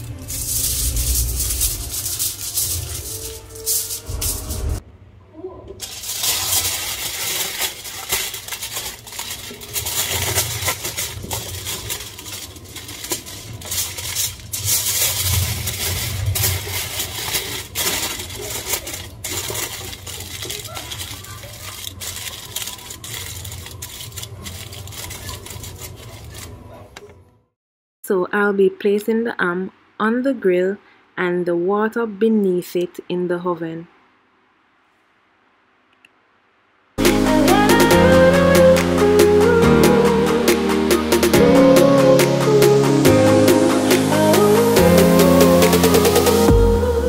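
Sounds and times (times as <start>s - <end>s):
aluminium foil crinkling: 0.0s - 4.8s, 5.8s - 26.9s.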